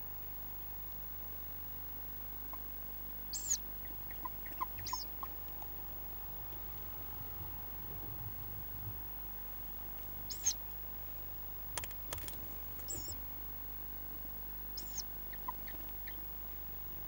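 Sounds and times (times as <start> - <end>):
steady low hum: 0.0 - 17.0
owl chicks squeaking: 3.3 - 5.8, 10.2 - 10.6, 12.2 - 13.3, 14.7 - 16.3.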